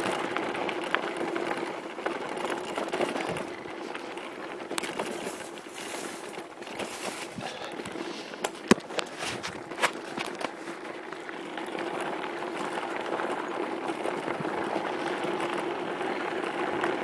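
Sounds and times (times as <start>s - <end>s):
mountain bike rattling on dirt: 0.0s - 17.0s
sharp knocks over bumps: 6.7s - 10.7s.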